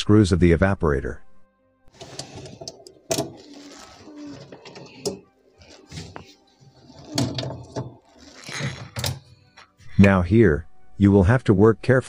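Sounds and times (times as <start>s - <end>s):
screwdriver clicking and scraping: 2.0s - 9.7s.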